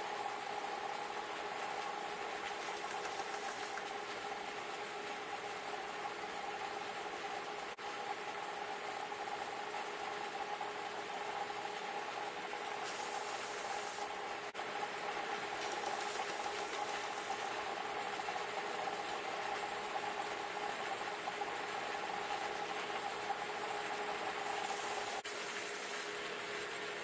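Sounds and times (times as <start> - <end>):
wood rubbing on sanding belt: 2.4 - 3.9.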